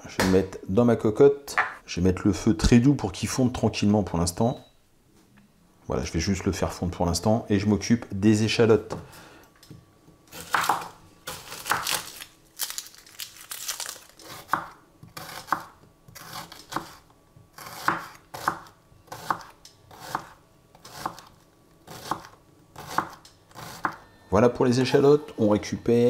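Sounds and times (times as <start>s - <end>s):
papery skin crackling and tearing: 11.4s - 14.3s
knife slicing and tapping board: 17.6s - 20.3s.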